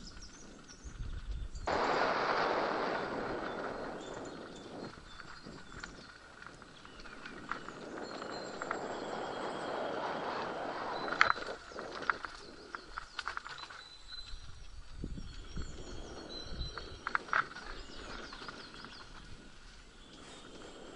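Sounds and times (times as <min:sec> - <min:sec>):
birds singing: 0:00.0 - 0:01.8, 0:03.0 - 0:20.9
bike tyres on dirt trail: 0:00.0 - 0:20.9
bike clicks and rattles: 0:10.5 - 0:15.8.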